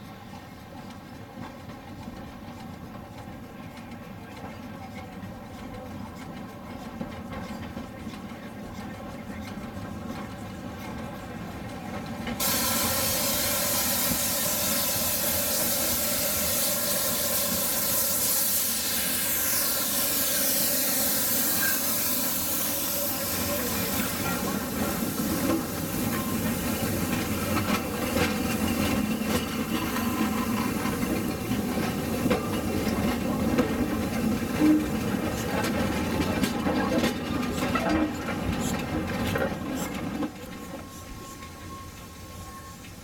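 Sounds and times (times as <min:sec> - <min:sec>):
hiss of escaping steam: 0:12.4 - 0:36.2.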